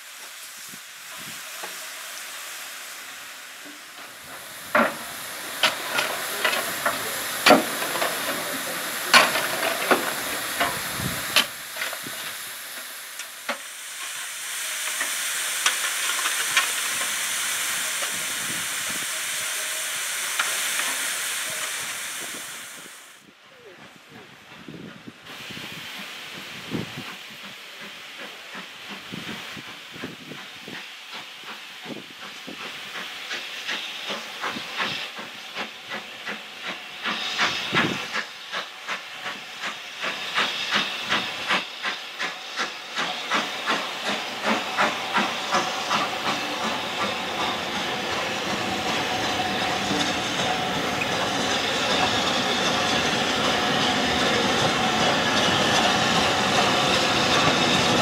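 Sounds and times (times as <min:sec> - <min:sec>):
steam hiss: 0:00.0 - 0:58.0
steam locomotive chuffing: 0:00.0 - 0:58.0
train running rumble: 0:00.1 - 0:58.0.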